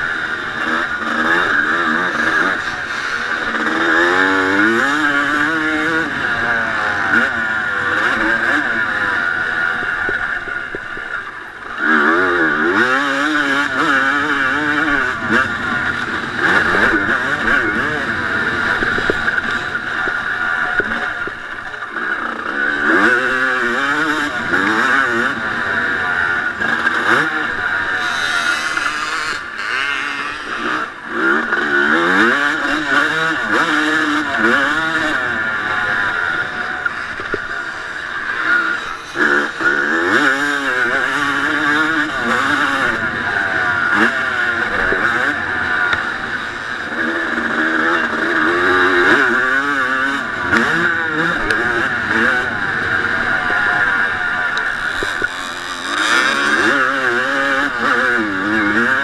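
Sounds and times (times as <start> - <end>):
motocross engine revving: 0.0 - 59.0.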